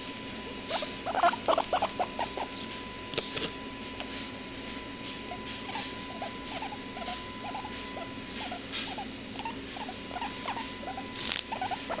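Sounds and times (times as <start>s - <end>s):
guinea pig soft calls: 0.6s - 2.8s, 5.0s - 12.0s.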